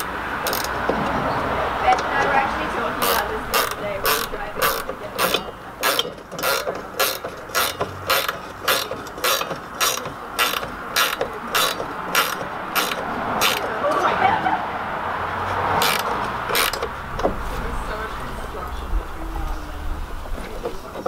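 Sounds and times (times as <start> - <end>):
hand ratchet clicking: 0.0 - 1.2, 2.9 - 13.8, 15.5 - 17.3.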